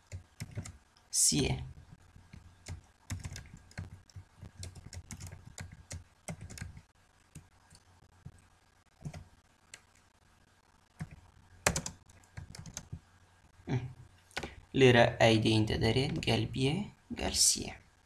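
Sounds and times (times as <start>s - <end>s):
typing on computer keyboard: 0.0s - 0.8s, 2.3s - 7.8s, 9.0s - 9.9s, 11.0s - 13.0s.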